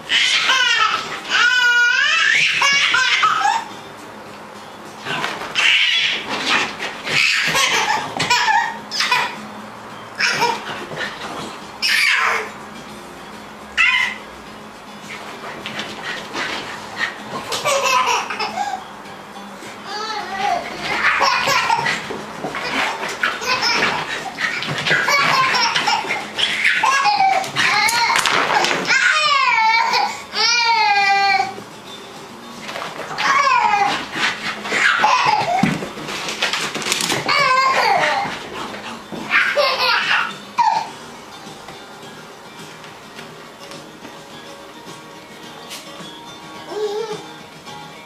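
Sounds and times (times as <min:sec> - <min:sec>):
baby laughing: 0:00.1 - 0:03.7, 0:05.1 - 0:09.4, 0:10.2 - 0:12.6, 0:13.8 - 0:14.2, 0:15.6 - 0:18.8, 0:19.8 - 0:31.6, 0:33.1 - 0:35.8, 0:37.0 - 0:40.9, 0:46.7 - 0:47.3
dog yipping and whining: 0:00.1 - 0:03.8, 0:05.0 - 0:09.4, 0:10.2 - 0:11.2, 0:11.8 - 0:12.5, 0:13.8 - 0:14.3, 0:19.9 - 0:31.5, 0:33.1 - 0:35.8, 0:37.0 - 0:41.0.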